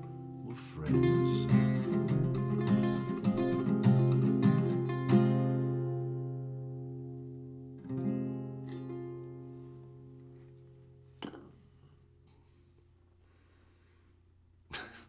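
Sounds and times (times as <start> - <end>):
acoustic guitar and ukulele chord: 0.0 - 10.1.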